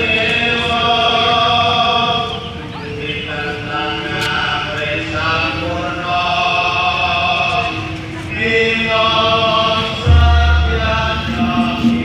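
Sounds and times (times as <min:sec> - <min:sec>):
group of voices chanting: 0:09.1 - 0:12.0.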